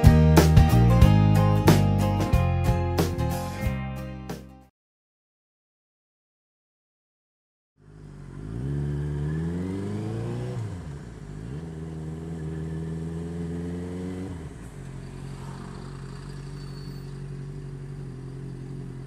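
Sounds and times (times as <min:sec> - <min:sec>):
motorcycle engine pulling away: 0:07.8 - 0:19.0.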